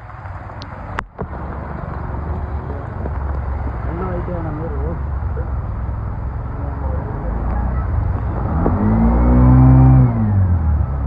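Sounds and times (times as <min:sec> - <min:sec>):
diesel bus engine passing: 0:00.0 - 0:11.0
road traffic rumble: 0:00.0 - 0:11.0.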